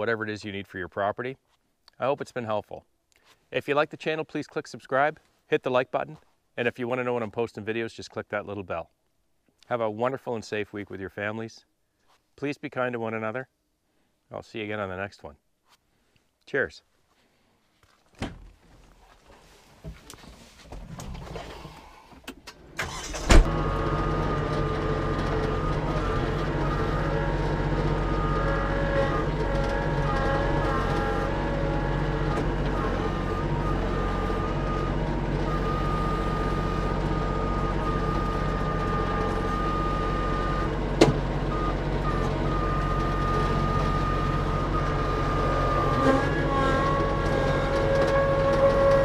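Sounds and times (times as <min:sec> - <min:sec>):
tractor diesel engine running: 0:22.6 - 0:49.0
hydraulic whine: 0:22.8 - 0:49.0.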